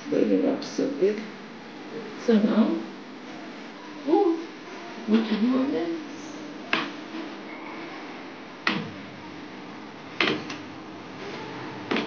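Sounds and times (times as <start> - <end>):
steady low hiss: 0.0 - 12.0
sharp knocks: 8.6 - 9.0, 10.2 - 10.6.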